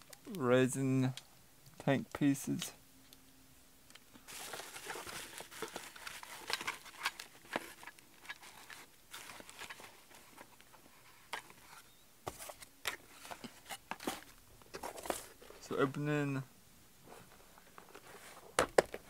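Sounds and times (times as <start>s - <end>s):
plastic packaging crinkling: 4.2s - 10.7s
cardboard box being opened: 4.3s - 10.4s.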